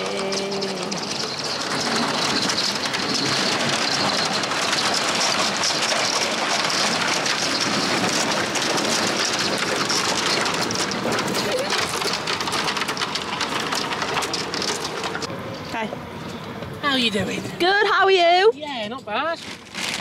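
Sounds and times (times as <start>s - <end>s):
ice cracking and grinding: 1.2s - 15.3s, 19.4s - 20.0s.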